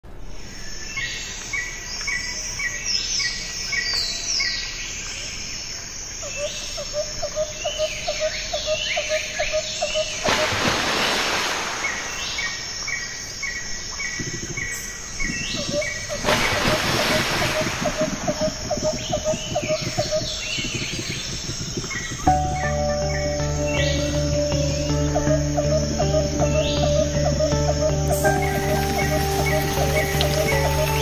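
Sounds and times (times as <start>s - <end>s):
rapid lower chirps: 11.7s - 31.0s
birds chirping and calling: 11.8s - 31.0s.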